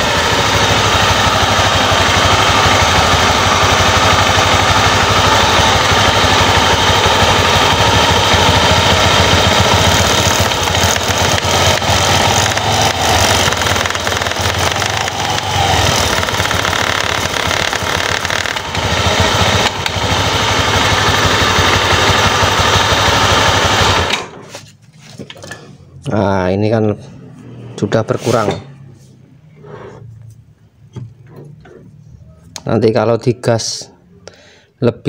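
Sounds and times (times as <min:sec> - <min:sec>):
scooter engine running: 0:00.0 - 0:24.7
wooden block rubbing clutch bell: 0:10.1 - 0:18.6.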